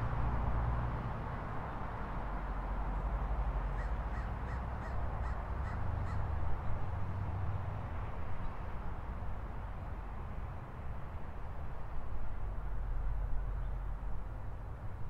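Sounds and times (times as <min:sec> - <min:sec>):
city traffic rumble: 0:00.0 - 0:15.0
crow cawing: 0:03.8 - 0:06.3.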